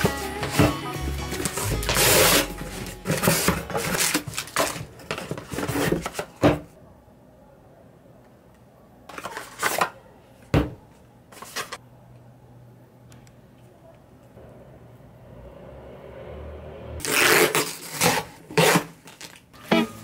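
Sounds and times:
packaging rustling and scraping: 1.3 - 6.4, 9.1 - 9.9, 11.3 - 11.8, 17.0 - 20.0.

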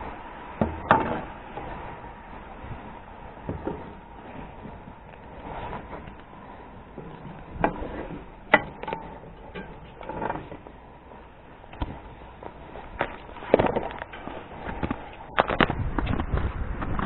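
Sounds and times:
crunching in snow: 1.6 - 8.4.

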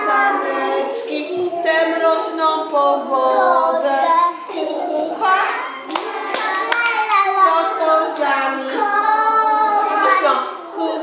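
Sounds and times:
children singing: 0.0 - 11.0
hand claps: 5.9 - 7.3.

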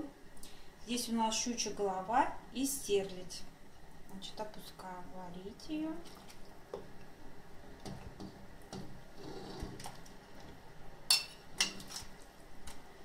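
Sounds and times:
metal spoon clinking dishes: 11.1 - 11.9.

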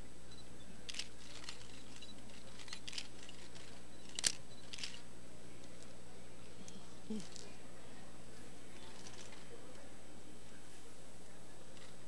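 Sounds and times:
camera shutters clicking: 0.9 - 5.0.

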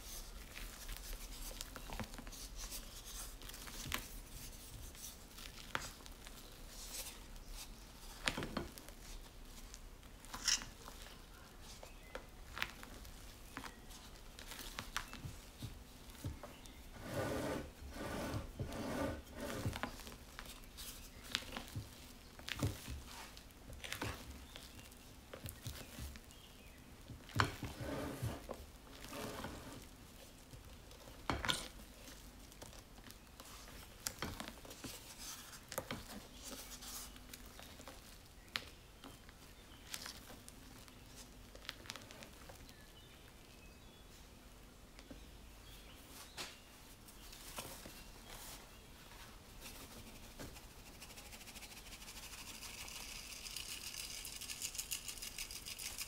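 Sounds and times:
soft squishing of foam: 0.0 - 56.0
spatula scraping glass bowl: 17.0 - 19.7.

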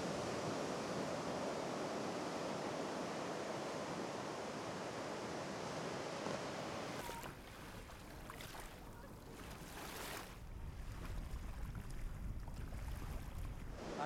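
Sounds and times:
small waves lapping: 6.2 - 14.0
low wind rumble: 10.3 - 14.0.

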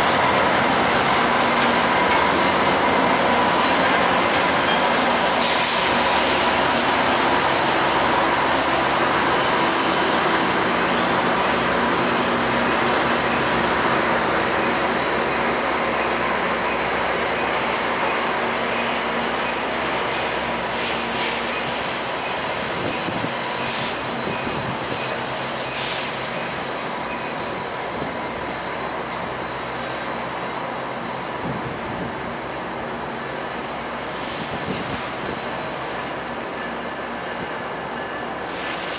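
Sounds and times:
diesel locomotive engine drone: 0.0 - 38.9
air hiss: 5.4 - 6.5, 23.5 - 24.1, 25.7 - 26.4, 38.4 - 38.9.

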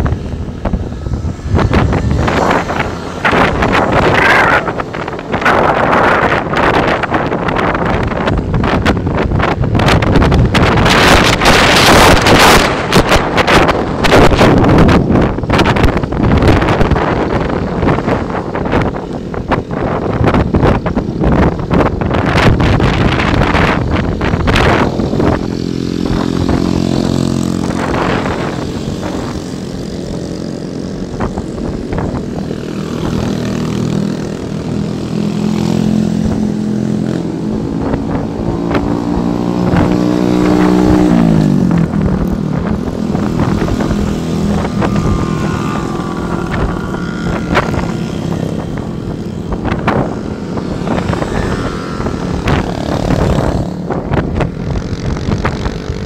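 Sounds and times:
small motorcycle engine running: 15.9 - 56.0.

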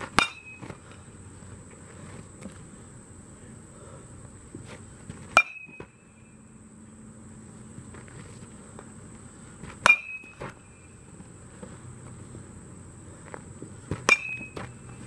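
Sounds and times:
metal bat pinging ball: 0.1 - 0.7, 5.3 - 6.0, 9.8 - 10.8, 14.0 - 15.0.

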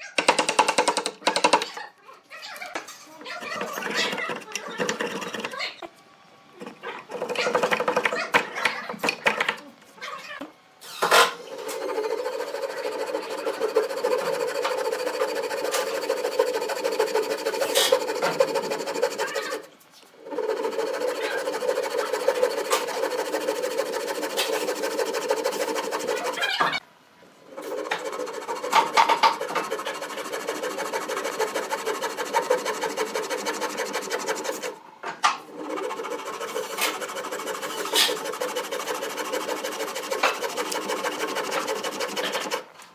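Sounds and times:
hand saw cutting wood: 7.0 - 8.2, 11.2 - 26.8, 27.6 - 34.8, 35.5 - 42.7.

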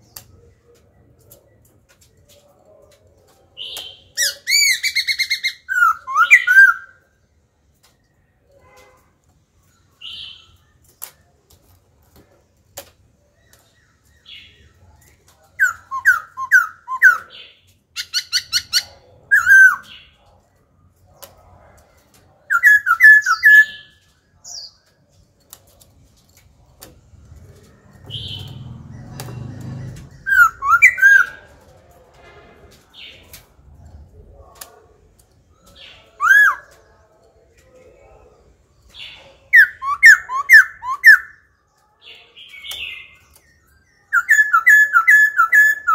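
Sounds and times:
bird whistling song: 3.6 - 7.0, 15.6 - 20.1, 22.5 - 24.8, 28.1 - 28.6, 29.2 - 31.4, 35.7 - 36.8, 39.5 - 41.5, 42.5 - 45.9.

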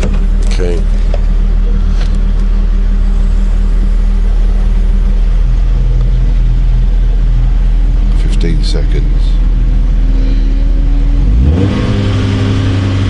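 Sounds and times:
car engine idling: 0.0 - 13.0.

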